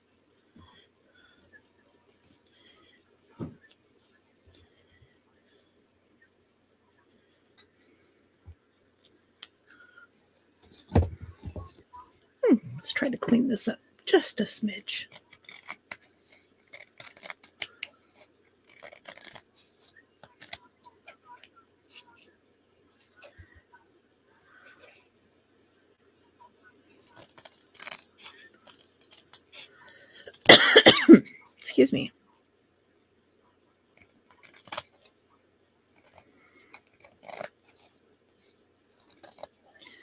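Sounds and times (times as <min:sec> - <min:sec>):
scissors snipping paper: 0:15.1 - 0:18.0, 0:18.6 - 0:22.1, 0:27.0 - 0:30.5, 0:34.0 - 0:35.1, 0:36.0 - 0:37.8, 0:39.0 - 0:39.6.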